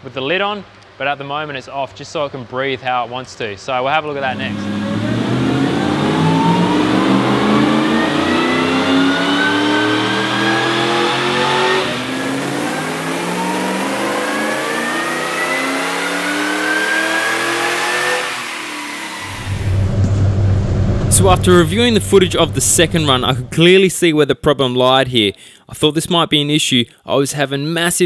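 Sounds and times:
supercharged engine revving: 4.1 - 23.7.

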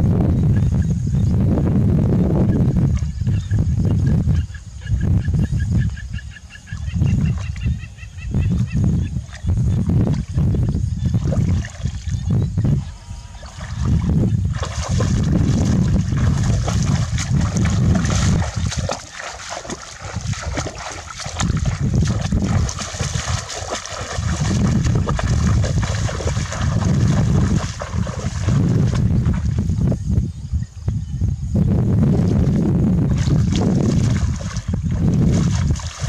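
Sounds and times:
water sloshing and splashing: 11.2 - 12.3, 13.3 - 29.6, 33.1 - 36.0
low rumble: 13.5 - 19.0, 20.0 - 30.3.

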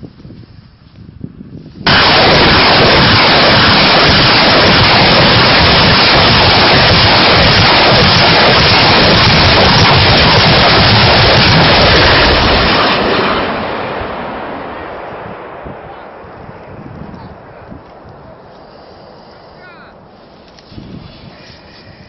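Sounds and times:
rocket launcher firing salvo: 1.8 - 18.5.

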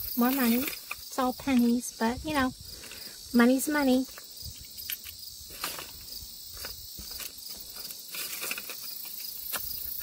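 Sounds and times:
small items being handled: 0.0 - 1.8, 3.9 - 10.0
insect chirping: 0.0 - 10.0.

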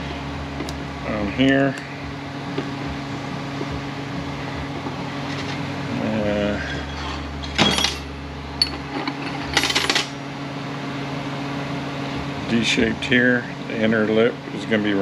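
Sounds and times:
fan humming: 0.0 - 15.0
metal parts clicking on bench: 7.5 - 10.1.

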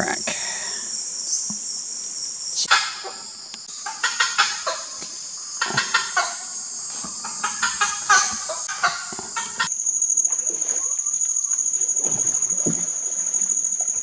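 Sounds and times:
high-pitched insect chorus: 0.0 - 14.0.

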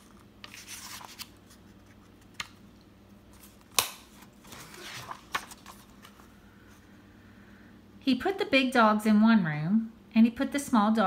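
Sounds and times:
paper page rustling: 0.0 - 2.6, 3.3 - 6.3.

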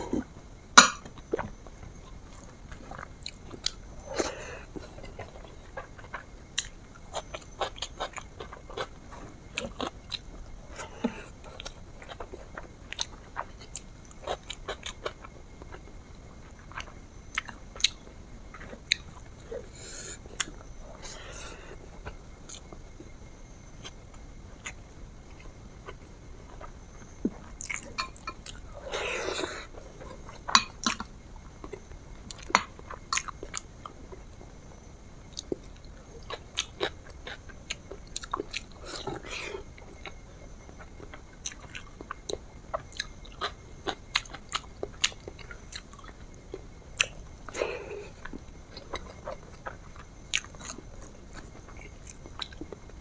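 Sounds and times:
person chewing with mouth clicks: 24.6 - 33.6, 35.3 - 53.0.

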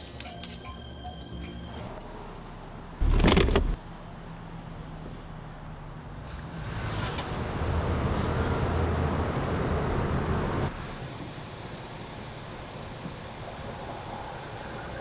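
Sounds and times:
car engine running: 3.0 - 3.8.

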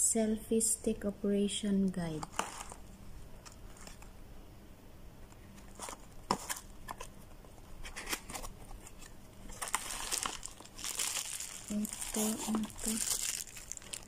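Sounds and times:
plastic bag crinkling: 2.2 - 4.1, 7.8 - 14.0
cardboard box being opened: 7.8 - 13.9.

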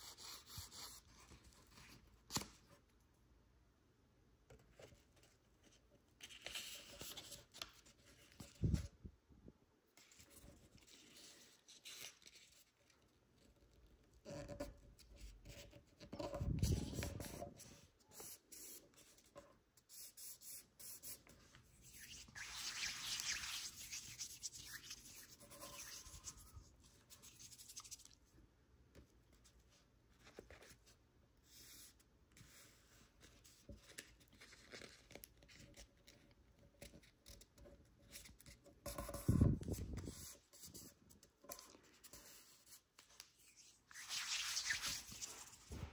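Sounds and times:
paper rustling and rubbing: 15.2 - 19.3, 19.9 - 28.2, 38.9 - 45.9.

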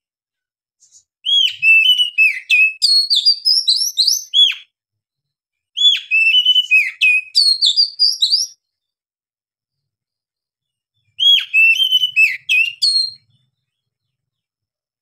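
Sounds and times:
bird singing whistled notes: 0.8 - 4.7, 5.8 - 8.7, 11.0 - 13.9.

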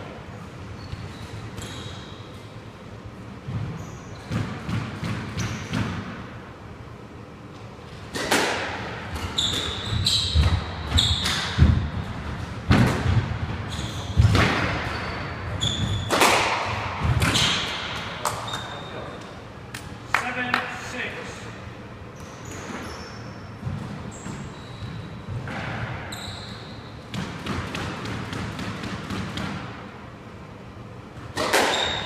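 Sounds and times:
shoes squeaking on wooden court: 0.4 - 2.6, 3.5 - 4.8, 5.4 - 5.8, 9.0 - 12.5, 13.6 - 19.4, 22.1 - 27.2, 31.4 - 32.0
squash ball struck by racquets: 3.4 - 6.3, 8.1 - 18.6, 23.6 - 26.1, 27.1 - 29.9, 31.2 - 32.0.

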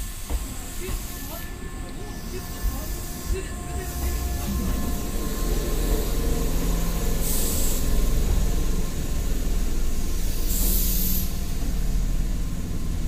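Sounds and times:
electric train rumbling past: 0.0 - 13.0
short bursts of hiss: 10.2 - 11.4.

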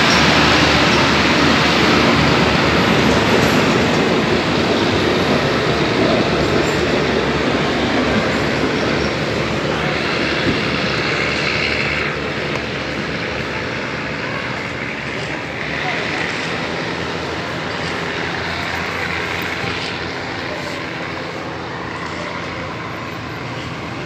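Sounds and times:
train wheels rumbling on rail: 0.0 - 24.0.

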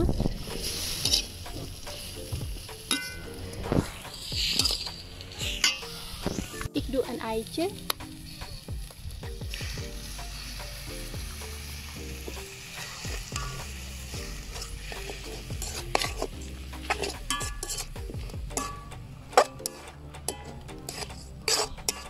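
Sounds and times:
metal spatula scraping a wok: 0.0 - 6.8, 8.0 - 22.0
food sizzling in a wok: 0.0 - 22.0
spatula clanking on wok: 0.5 - 3.4, 4.4 - 6.0, 12.2 - 22.0.

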